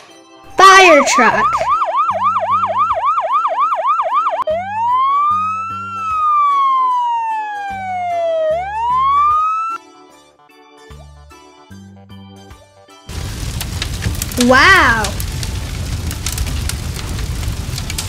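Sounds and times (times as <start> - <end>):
electronic emergency siren: 1.2 - 9.8
background music with bass: 4.4 - 6.5.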